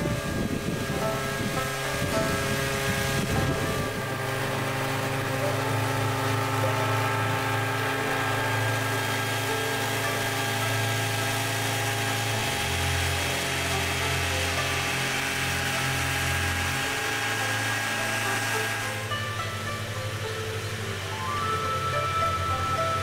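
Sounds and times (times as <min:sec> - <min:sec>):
small engine running: 0:00.0 - 0:23.0.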